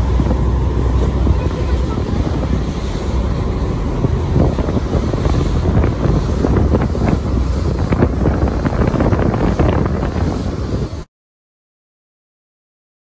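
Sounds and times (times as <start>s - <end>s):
boat engine rumble: 0.0s - 11.1s
wind buffeting microphone: 0.0s - 11.1s.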